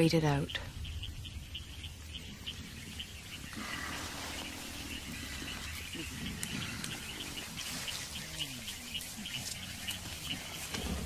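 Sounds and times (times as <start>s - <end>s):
insect chirping: 0.0s - 11.0s
gorillas grunting: 2.2s - 11.0s.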